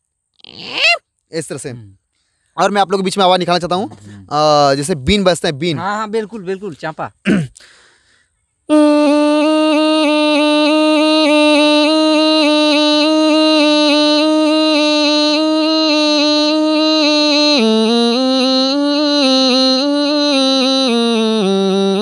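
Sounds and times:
man imitating a reed pipe: 0.4s - 1.0s, 8.7s - 22.0s.

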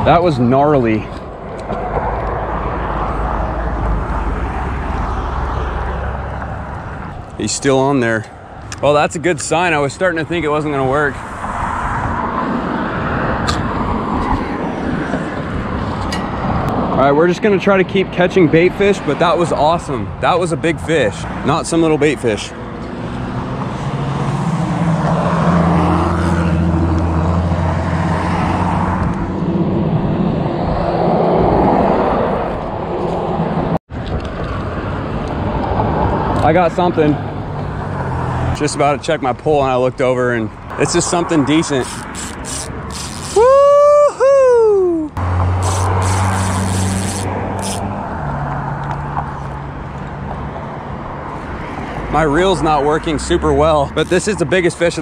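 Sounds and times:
car passing: 0.0s - 17.8s, 18.4s - 39.4s, 44.6s - 55.0s
vehicle engine drone: 0.0s - 39.2s, 40.6s - 55.0s
tyre noise: 41.5s - 48.0s.

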